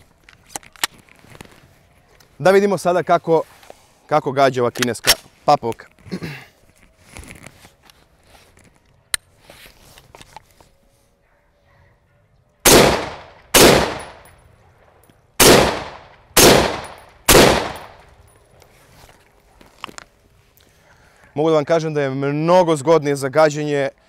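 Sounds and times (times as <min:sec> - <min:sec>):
rifle shots with echo: 0:12.6 - 0:14.3, 0:15.4 - 0:18.1.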